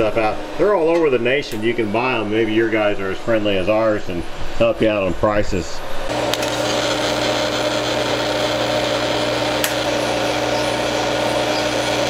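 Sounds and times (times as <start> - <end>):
welding arc buzzing hiss: 6.1 - 12.0.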